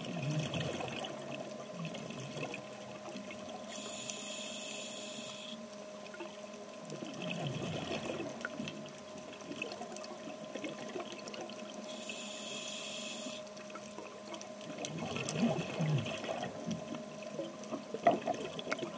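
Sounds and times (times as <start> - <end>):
faint steady hum: 0.0 - 18.9
diver breathing through regulator: 3.7 - 5.6, 11.9 - 13.5
bubbling breaths: 14.8 - 16.8.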